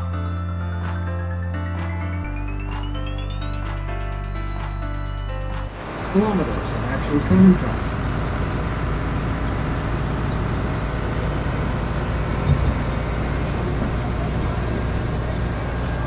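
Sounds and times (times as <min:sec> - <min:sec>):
tram running gear rumbling: 0:05.9 - 0:16.0.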